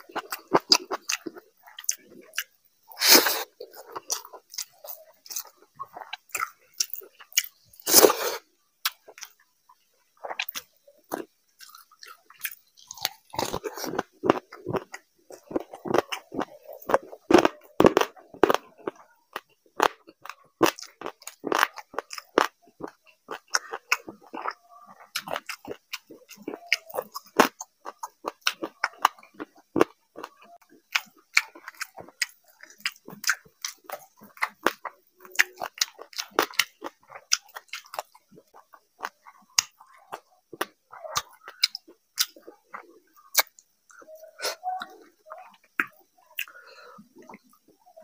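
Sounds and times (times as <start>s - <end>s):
chewing with wet lip smacks: 10.2s - 44.2s.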